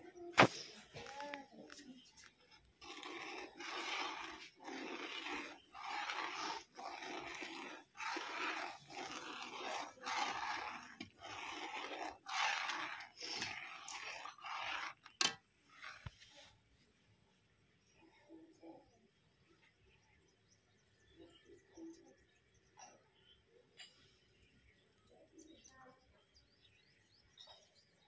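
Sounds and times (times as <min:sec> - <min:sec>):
metal spatula scraping iron pan: 0:02.8 - 0:16.2.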